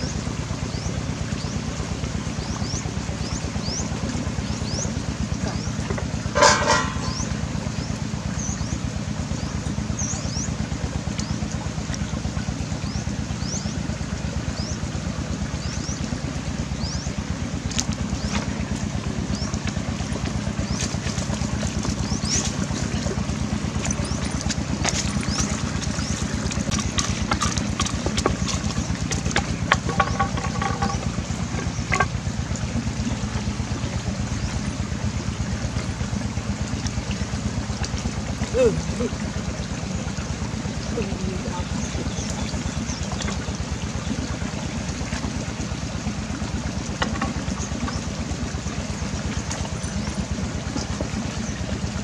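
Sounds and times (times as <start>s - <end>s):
small engine droning: 0.0s - 52.0s
sharp clicks and knocks: 26.7s - 32.2s.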